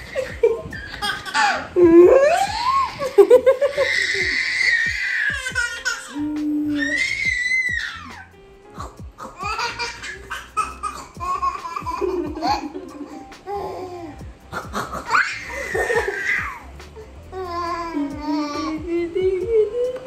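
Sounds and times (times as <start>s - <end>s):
woman laughing: 0.0s - 4.4s, 11.9s - 13.7s
baby laughing: 0.0s - 18.9s
background music: 0.0s - 20.0s.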